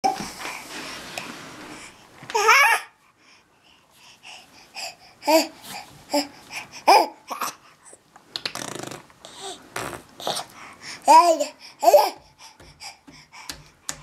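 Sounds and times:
baby babbling and squealing: 0:02.3 - 0:02.9.

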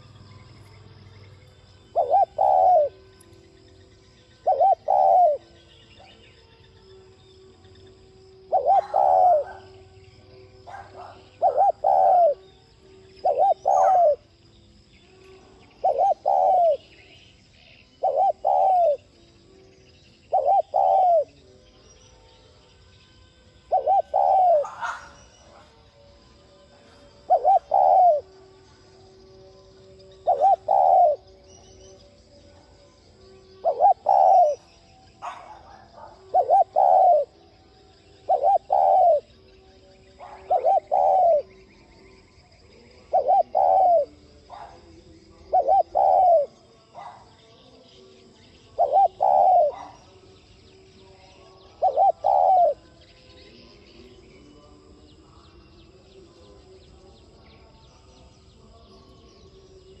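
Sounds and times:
dove cooing: 0:01.8 - 0:03.1, 0:04.4 - 0:06.2, 0:08.4 - 0:14.3, 0:15.6 - 0:19.2, 0:20.2 - 0:21.4, 0:23.6 - 0:26.0, 0:27.0 - 0:28.7, 0:30.0 - 0:31.7, 0:33.4 - 0:41.6, 0:42.8 - 0:47.4, 0:48.2 - 0:50.2, 0:51.6 - 0:52.9.

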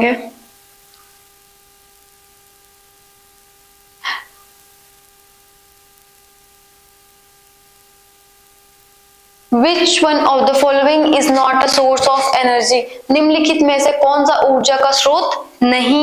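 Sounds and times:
faint electrical hum: 0:00.0 - 0:16.0
short sharp breath: 0:04.0 - 0:04.4.

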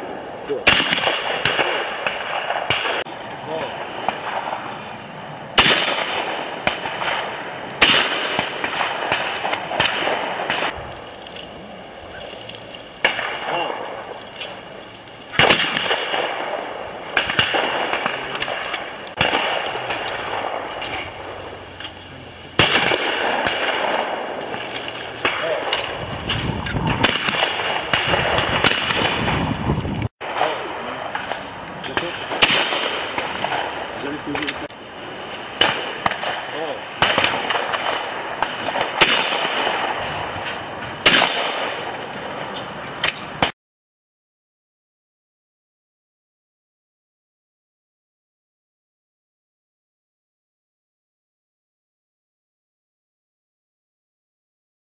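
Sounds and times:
shotgun shots echoing: 0:00.0 - 0:10.8, 0:13.0 - 0:29.6, 0:30.2 - 0:43.5
background hiss: 0:00.0 - 0:29.2.

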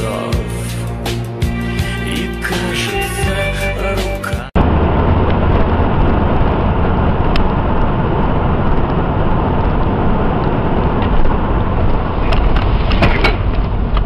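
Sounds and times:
vehicle road noise: 0:04.4 - 0:14.0.

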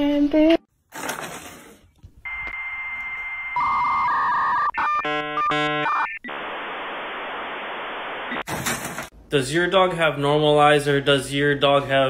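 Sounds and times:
modem beeping tones: 0:02.2 - 0:06.5
modem steady tone: 0:02.2 - 0:08.5
static hiss: 0:06.3 - 0:08.5.

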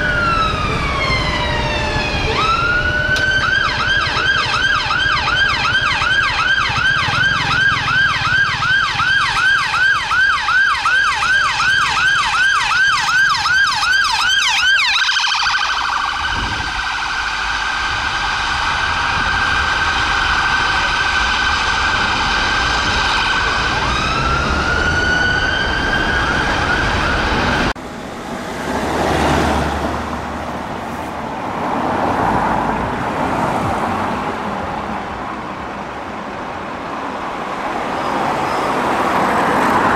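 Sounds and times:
emergency vehicle siren: 0:00.0 - 0:30.8
passing road traffic: 0:00.0 - 0:39.9.

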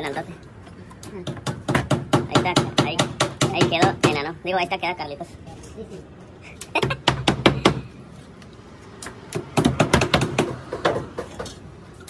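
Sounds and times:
hammer driving nails: 0:01.2 - 0:04.2, 0:09.3 - 0:11.5.

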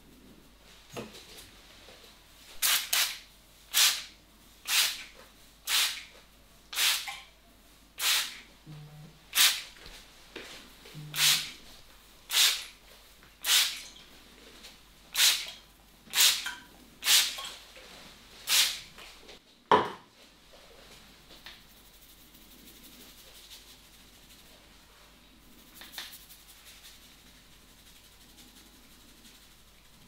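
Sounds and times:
hands rubbing scalp: 0:21.0 - 0:30.0.

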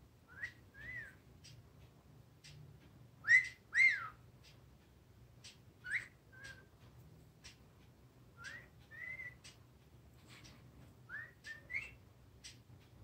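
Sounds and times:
parrot whistling: 0:00.3 - 0:01.2, 0:03.2 - 0:04.2, 0:05.8 - 0:06.7, 0:08.4 - 0:09.4, 0:11.1 - 0:12.0
faint soft clicks: 0:00.4 - 0:13.0.

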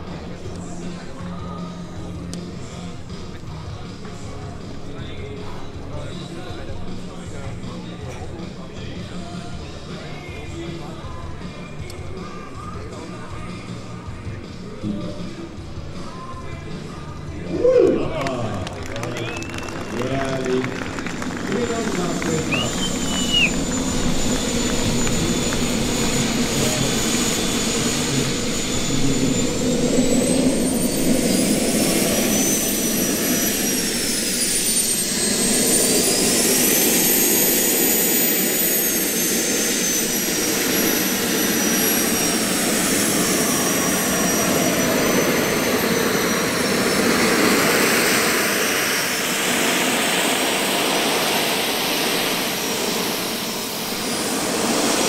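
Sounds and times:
model jet turbine whining: 0:14.5 - 0:55.0.

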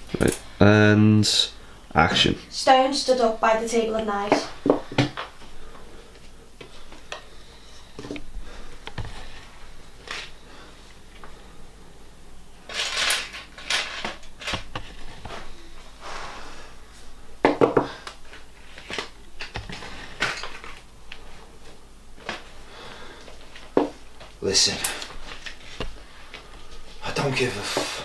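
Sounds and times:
knives and tools clattering: 0:12.7 - 0:14.7.

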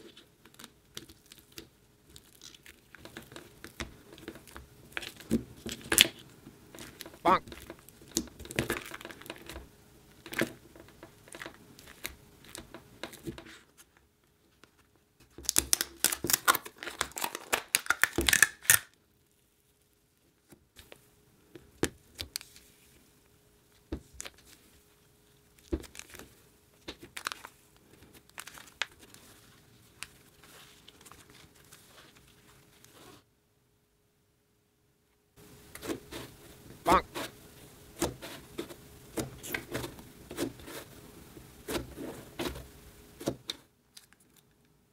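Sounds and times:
slime crackling and tearing: 0:00.4 - 0:03.8, 0:15.4 - 0:19.0.

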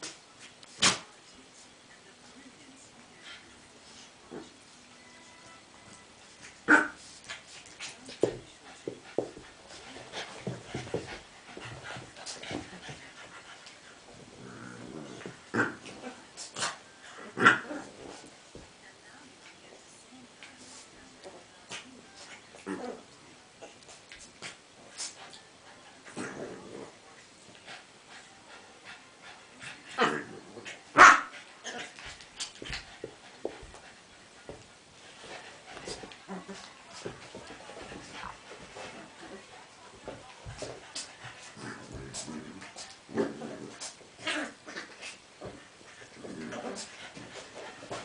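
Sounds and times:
dogs panting: 0:07.0 - 0:14.2, 0:31.4 - 0:43.0
dogs snuffling: 0:31.8 - 0:44.0.

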